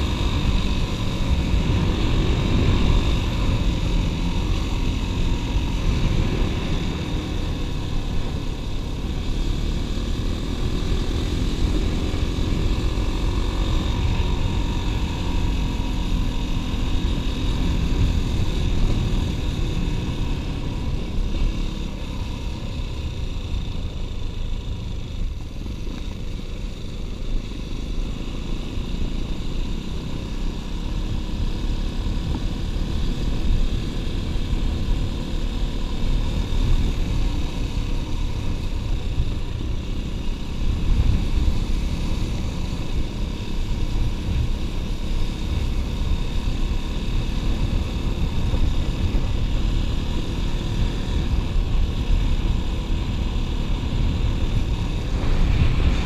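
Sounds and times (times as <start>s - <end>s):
wind on microphone: 53.6s - 56.0s.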